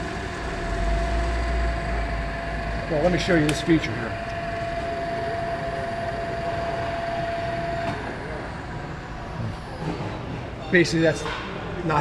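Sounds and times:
motor whine winding down: 0:00.0 - 0:09.9
filling machine humming: 0:00.0 - 0:10.3.

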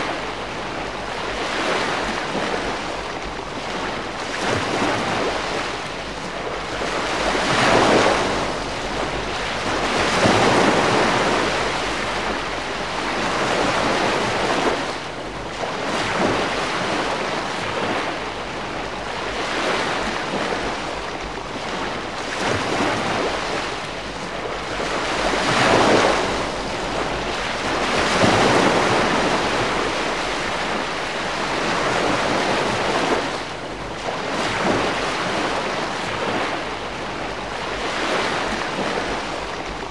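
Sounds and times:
gentle waves on shore: 0:00.0 - 0:39.9.

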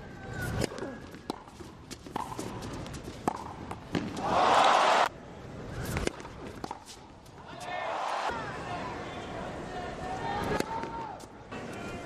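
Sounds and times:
racquet striking tennis ball: 0:00.6 - 0:02.6, 0:03.2 - 0:04.4
crowd cheering: 0:04.2 - 0:05.1, 0:07.5 - 0:08.8.

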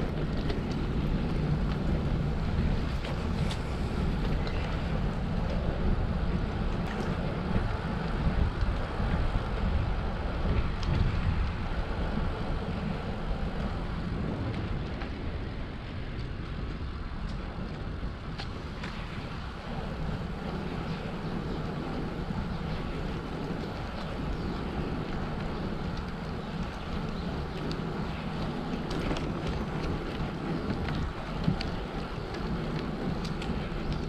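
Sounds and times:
bicycle riding noise: 0:00.0 - 0:34.0
wind buffeting microphone: 0:00.0 - 0:34.0
faint ticks: 0:22.6 - 0:34.0.

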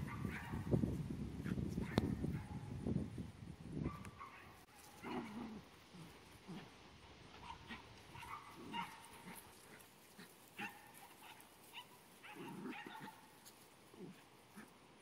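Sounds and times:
puppies yipping and barking: 0:07.4 - 0:13.3.

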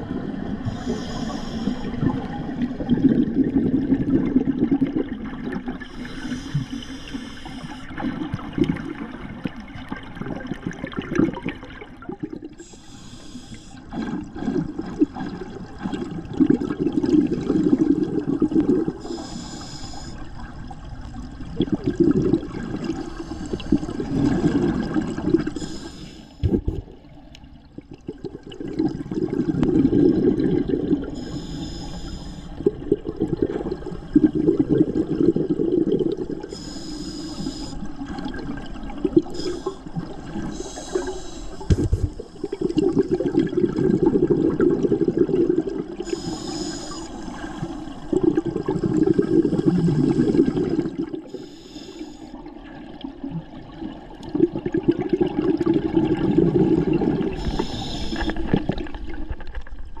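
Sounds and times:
gurgling exhaled bubbles: 0:00.0 - 0:12.7, 0:13.9 - 0:19.3, 0:20.2 - 0:25.8, 0:26.4 - 0:51.5, 0:52.4 - 1:00.0
regulator hissing inhalation: 0:00.6 - 0:02.0, 0:05.9 - 0:07.9, 0:12.6 - 0:13.9, 0:19.0 - 0:20.2, 0:25.6 - 0:26.4, 0:31.2 - 0:32.6, 0:36.4 - 0:37.9, 0:39.3 - 0:39.9, 0:40.5 - 0:42.8, 0:46.0 - 0:47.9, 0:51.3 - 0:52.4, 0:57.3 - 0:58.6.

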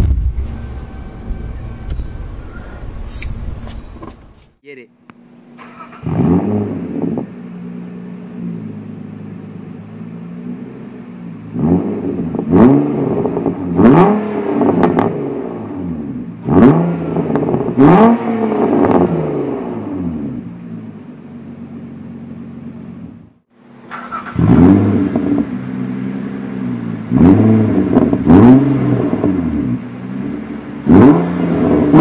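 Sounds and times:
car engine revving through exhaust: 0:05.9 - 0:23.2, 0:24.1 - 0:32.0.

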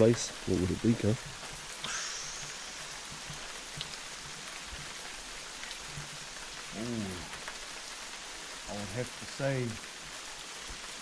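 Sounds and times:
small waterfall splashing: 0:00.0 - 0:11.0
man humming: 0:06.7 - 0:07.4.

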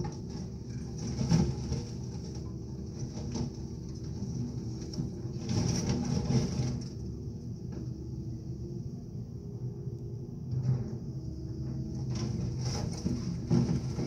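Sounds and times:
bucket knocking and crunching debris: 0:00.0 - 0:06.9, 0:12.3 - 0:14.0.

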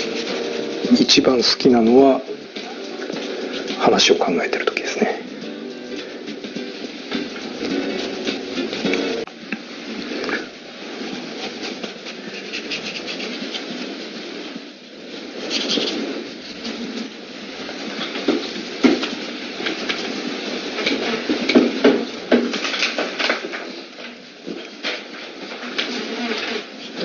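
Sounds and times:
pencil drawing on paper: 0:11.4 - 0:13.8.

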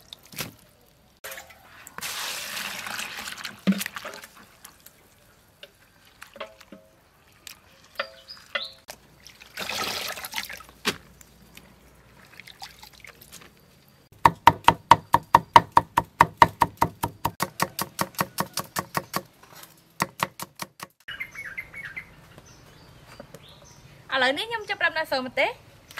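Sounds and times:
water splash: 0:01.2 - 0:04.9, 0:09.2 - 0:11.1.

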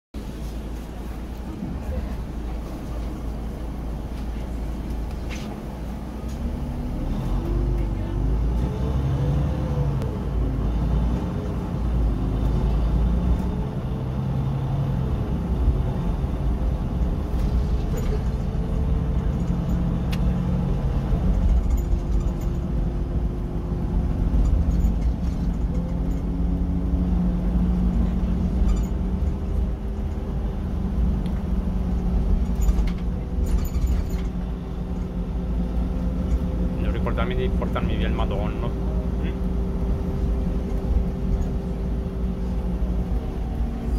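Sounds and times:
bus engine and drivetrain: 0:00.1 - 0:43.9
road rumble: 0:00.1 - 0:43.9
light rattles: 0:17.2 - 0:23.0, 0:31.4 - 0:36.6.

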